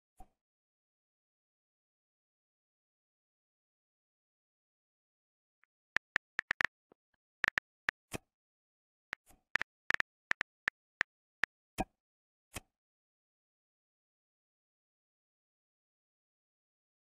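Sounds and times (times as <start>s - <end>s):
phone keyboard tap clicks: 5.9s - 6.7s, 9.6s - 10.4s.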